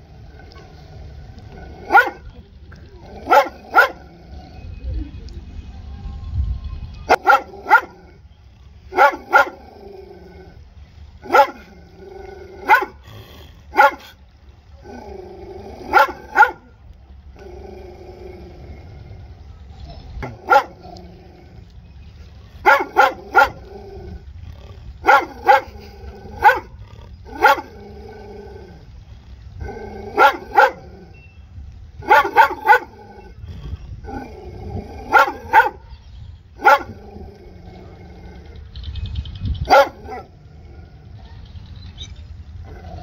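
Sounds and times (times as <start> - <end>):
dog barking: 1.9 - 2.3, 3.3 - 4.0, 7.1 - 8.0, 8.9 - 9.6, 11.2 - 11.7, 12.6 - 13.0, 13.7 - 14.2, 15.9 - 16.6, 20.2 - 20.8, 22.6 - 23.6, 25.0 - 25.7, 26.4 - 26.7, 27.4 - 27.7, 30.2 - 30.8, 32.0 - 32.9, 35.1 - 35.8, 36.6 - 37.0, 39.7 - 40.3.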